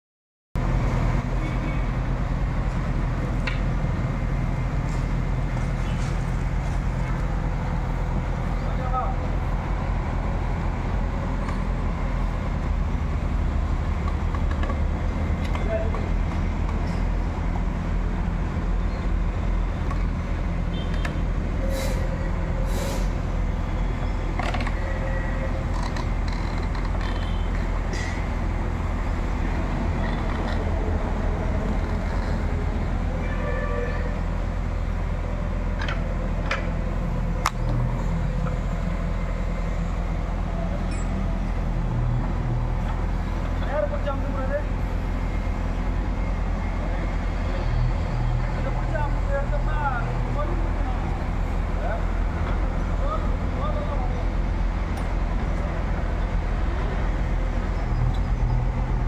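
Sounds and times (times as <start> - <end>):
diesel engine running: 0.6 - 59.0
short hisses: 21.6 - 23.2.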